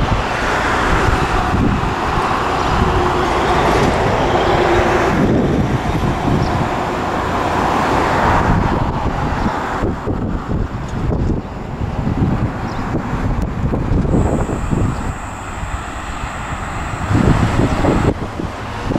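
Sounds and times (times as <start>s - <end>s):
diesel railcar pulling away: 0.0s - 8.4s, 14.1s - 18.9s
wind buffeting on microphone: 0.0s - 18.9s.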